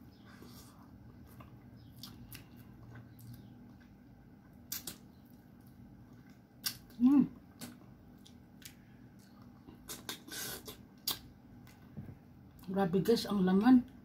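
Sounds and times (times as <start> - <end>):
faint low hum: 0.0 - 14.0
person chewing and sucking: 4.7 - 5.0, 6.6 - 7.0, 7.6 - 11.8.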